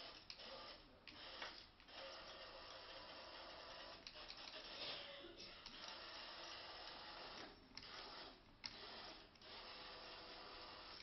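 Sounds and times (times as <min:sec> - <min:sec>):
robot vacuum whirring: 0:05.7 - 0:11.0.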